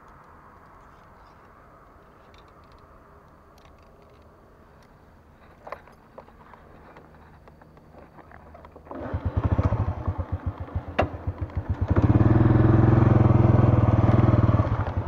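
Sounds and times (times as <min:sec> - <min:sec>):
motorcycle engine idling and revving: 0:05.4 - 0:15.0.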